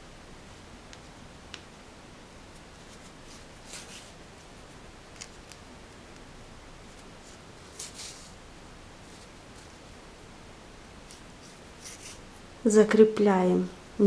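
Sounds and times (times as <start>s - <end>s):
steady hiss: 0.0s - 14.0s
thread rustling through yarn: 2.6s - 5.7s, 6.8s - 8.4s, 11.0s - 12.5s.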